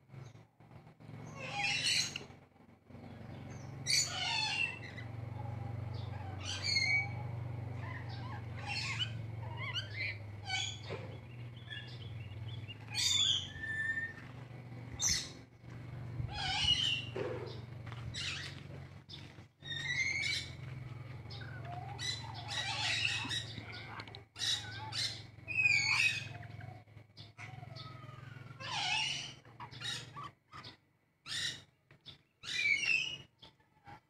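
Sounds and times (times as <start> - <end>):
steady low hum: 0.0 - 28.6
parrots chirping and squawking: 1.2 - 2.3, 3.1 - 15.4, 16.2 - 34.0.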